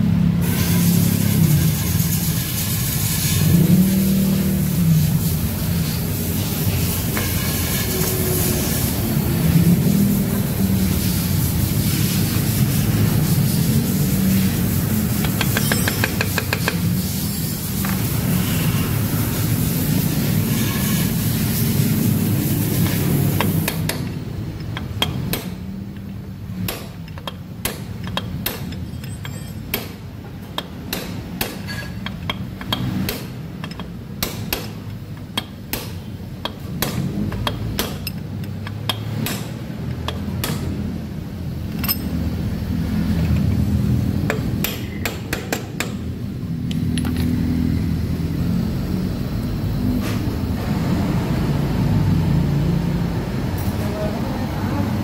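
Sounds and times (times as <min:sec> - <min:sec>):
hammer tapping on metal rod: 0:15.2 - 0:16.9, 0:23.4 - 0:40.7.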